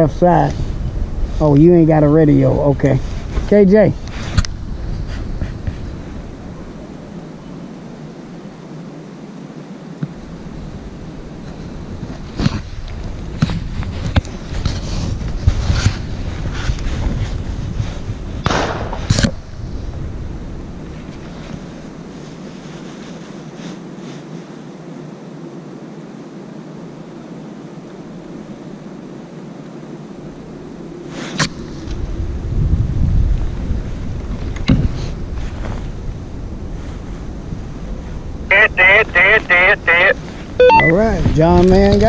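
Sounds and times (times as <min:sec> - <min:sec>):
wind rumbling on microphone: 0:00.0 - 0:08.4, 0:10.1 - 0:23.2, 0:30.2 - 0:38.5.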